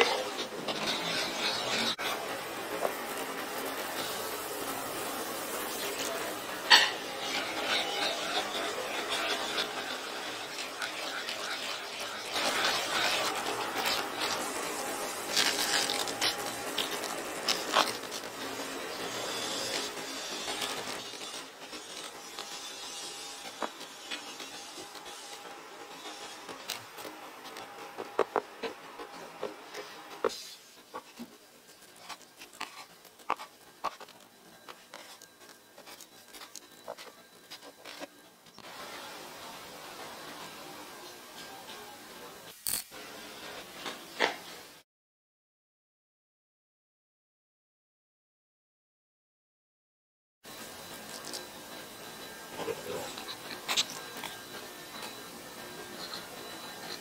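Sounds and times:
wooden spoon scraping a frying pan: 0.0 - 38.1
knife crunching crispy coating: 12.3 - 22.6.

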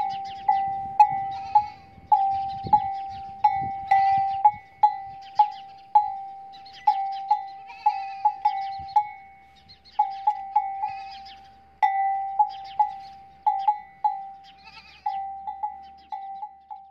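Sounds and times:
livestock bell clanking: 0.0 - 16.9
animal bleating: 1.1 - 4.4, 5.2 - 8.8, 10.0 - 11.6, 12.5 - 16.1.

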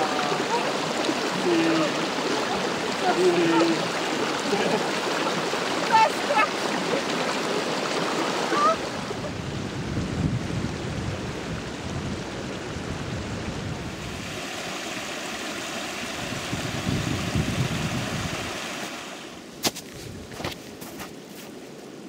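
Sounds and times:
mountain stream rushing: 0.0 - 22.0
wind gusting on microphone: 7.9 - 14.6, 16.0 - 21.0
boot crunching in snow: 19.6 - 21.6.

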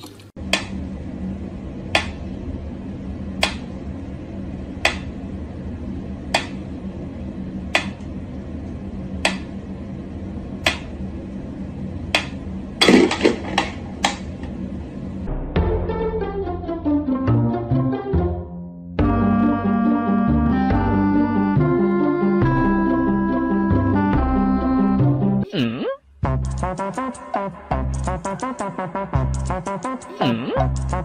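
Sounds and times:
knocks and clatter: 12.8 - 14.2.

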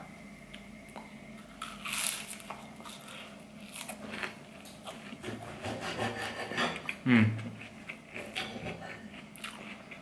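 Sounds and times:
crunchy chewing: 1.4 - 5.4, 6.8 - 10.0.

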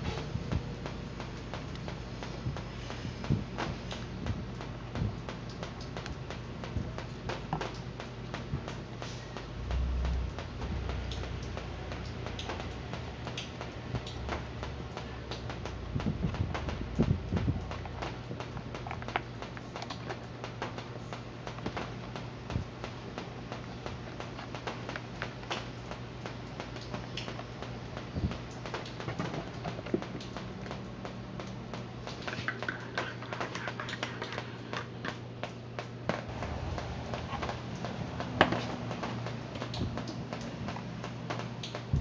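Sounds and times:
steady low hum: 0.0 - 42.0
plastic clicks and rattles: 17.0 - 20.7, 32.1 - 35.5.

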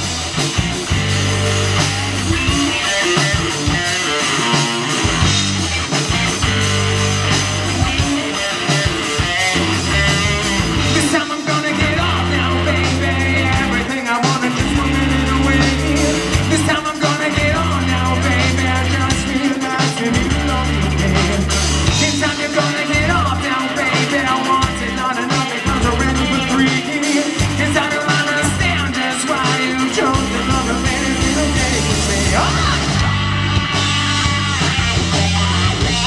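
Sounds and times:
bass guitar: 0.0 - 36.0
drum kit: 0.0 - 36.0
electric guitar: 0.0 - 36.0
man singing: 10.8 - 33.1.

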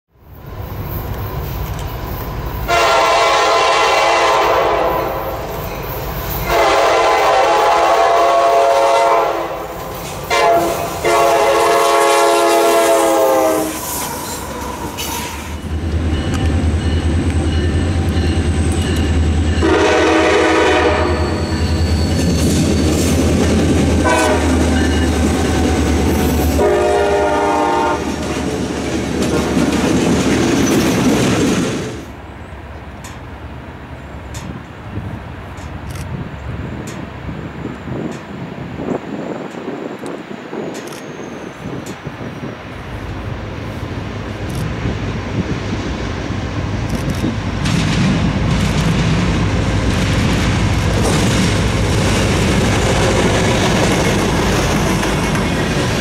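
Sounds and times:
rail cars rolling past: 0.2 - 56.0
locomotive air horn blasts: 2.7 - 5.4, 6.4 - 14.0, 19.6 - 21.6, 24.0 - 24.8, 26.5 - 28.1.

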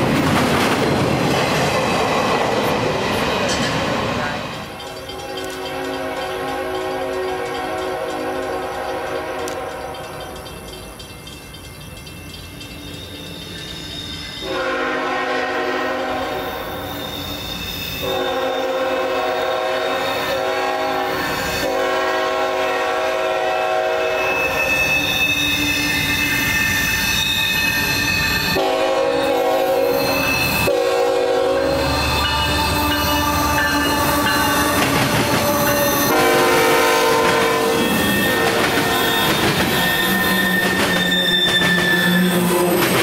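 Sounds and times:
train horn blasts: 4.8 - 10.3, 14.4 - 16.8, 18.0 - 26.5, 28.5 - 43.0.

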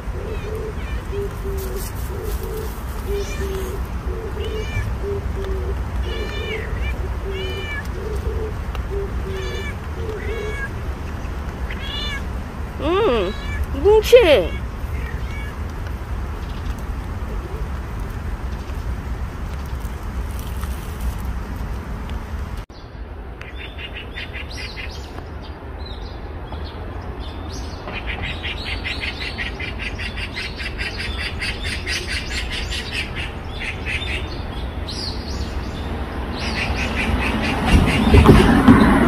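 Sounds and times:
small birds chirping: 0.0 - 21.5, 22.7 - 38.4.

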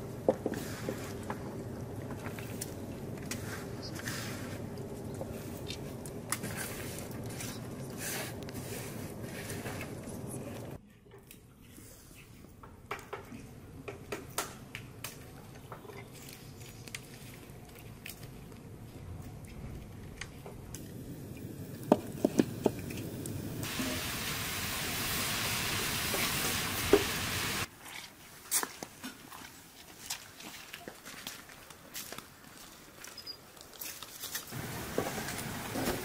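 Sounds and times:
steady hiss: 20.8 - 27.7, 34.5 - 36.0.

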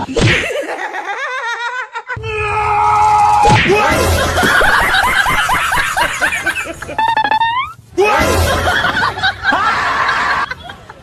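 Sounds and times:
people laughing: 0.0 - 2.2, 3.7 - 11.0
background music: 2.2 - 6.9, 8.0 - 9.8.

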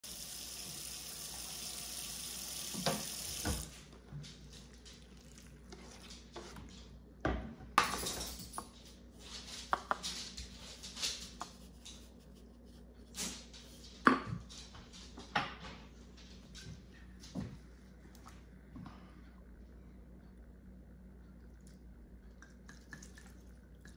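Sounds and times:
running water: 0.0 - 3.9.

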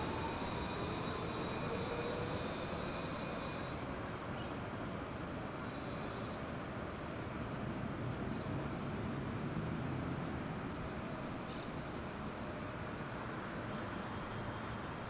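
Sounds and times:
tram motor high-pitched tones: 0.0 - 4.0.

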